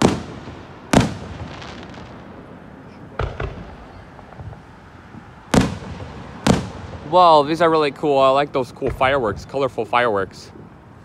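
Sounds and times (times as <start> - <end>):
firework crackle: 0.0 - 9.2
firework shells bursting: 3.2 - 4.7, 5.5 - 7.6.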